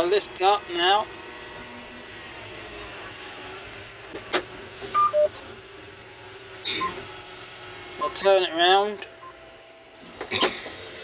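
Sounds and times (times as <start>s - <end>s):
two-note falling beep: 5.0s - 5.3s.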